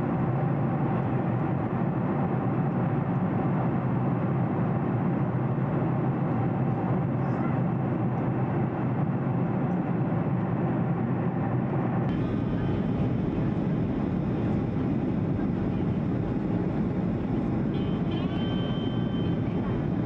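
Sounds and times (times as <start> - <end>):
airliner cabin engine rumble: 0.0 - 20.0
faint high whine: 12.1 - 20.0.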